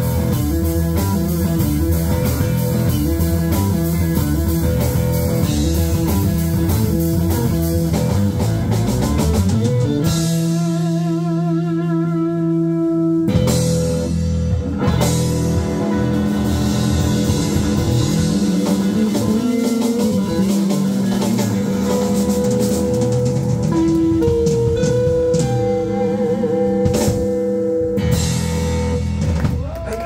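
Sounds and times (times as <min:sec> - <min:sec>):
electric guitar sustained notes: 0:00.0 - 0:29.3
drums: 0:00.0 - 0:30.0
electric bass: 0:00.0 - 0:30.0.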